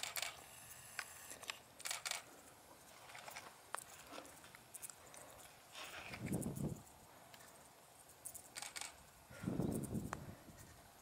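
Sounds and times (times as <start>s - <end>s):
camera handling clicks: 0.0s - 0.4s, 1.0s - 2.2s, 8.5s - 9.0s.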